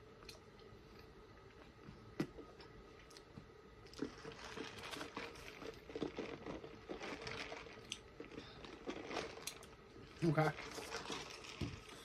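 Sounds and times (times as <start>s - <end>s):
person chewing: 2.1s - 12.0s.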